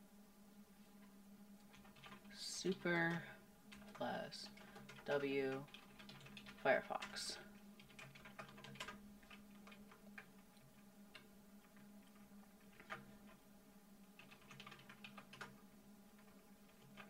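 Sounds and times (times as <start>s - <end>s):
faint low hum: 0.0s - 17.0s
faint keyboard keystrokes: 1.6s - 13.4s.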